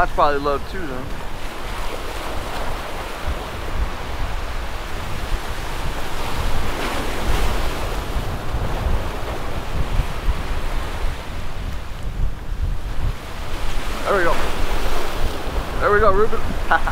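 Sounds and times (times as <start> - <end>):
ocean surf washing: 0.0 - 16.9
wind buffeting microphone: 0.0 - 16.9.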